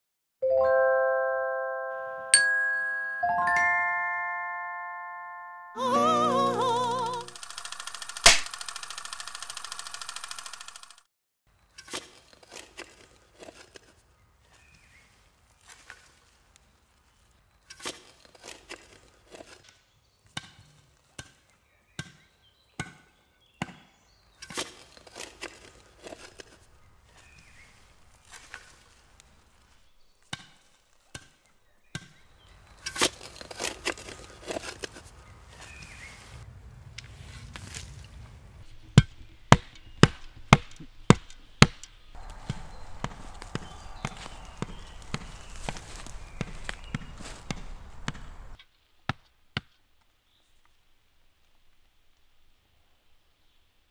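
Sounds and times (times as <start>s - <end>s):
shovel chopping into soil: 8.2s - 8.6s, 24.4s - 29.0s, 32.8s - 35.9s.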